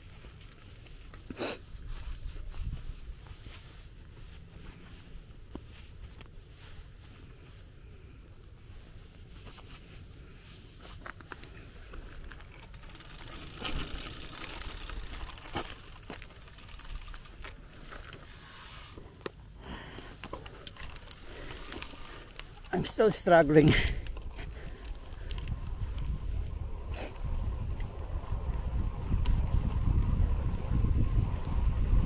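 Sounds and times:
bike clicks and rattles: 0.0s - 2.3s, 10.8s - 32.0s
bicycle tyres rumbling: 0.0s - 32.0s
freewheel ratchet ticking: 12.4s - 17.5s
wind on microphone: 24.2s - 32.0s.

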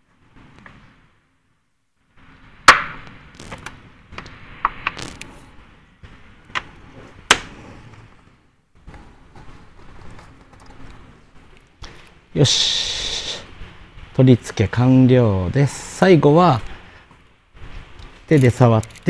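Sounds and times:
plastic clicks and rubbing: 18.0s - 19.0s.

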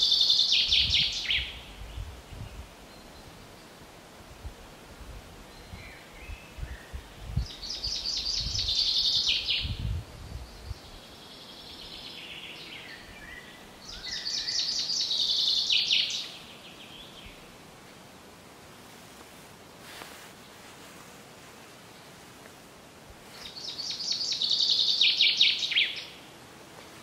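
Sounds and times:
songbird singing: 0.0s - 3.9s, 5.4s - 17.6s, 23.3s - 27.0s.

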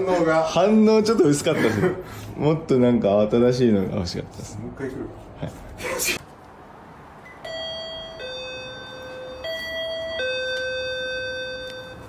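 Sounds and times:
intercom ding-dong chime: 7.3s - 12.0s.

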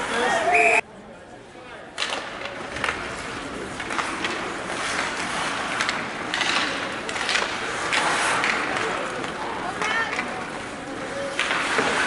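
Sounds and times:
hockey sticks and puck clacking: 1.9s - 12.0s
skate blades scraping ice: 2.6s - 12.0s.

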